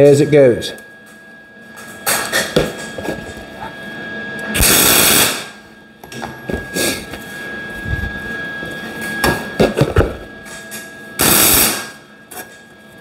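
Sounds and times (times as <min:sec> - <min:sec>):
welder spurts: 0:04.6 - 0:05.5, 0:11.2 - 0:12.0.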